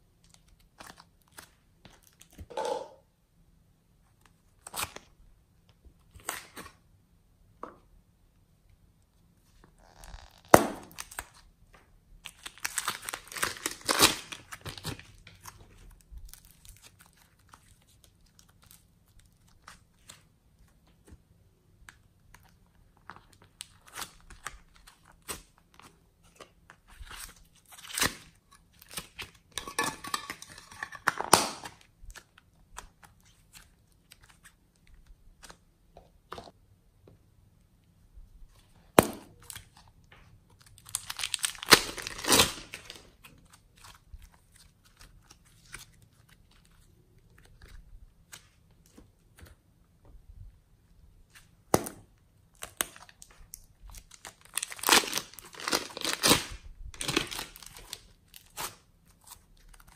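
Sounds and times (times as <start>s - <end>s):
plastic bag crinkling: 53.1s - 58.5s.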